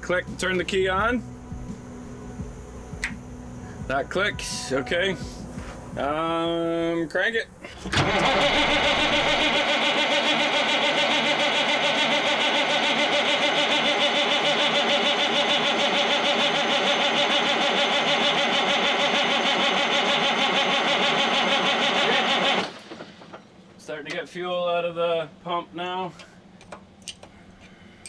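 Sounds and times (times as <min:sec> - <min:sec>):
diesel engine cranking on starter: 0:07.6 - 0:23.8.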